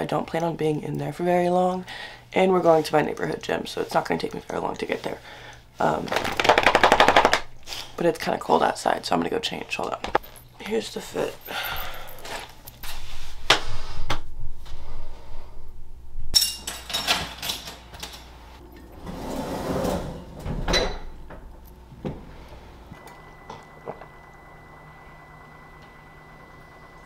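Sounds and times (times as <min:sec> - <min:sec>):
low hum with high whine: 0:00.0 - 0:27.0
rustling and scraping: 0:12.1 - 0:15.6.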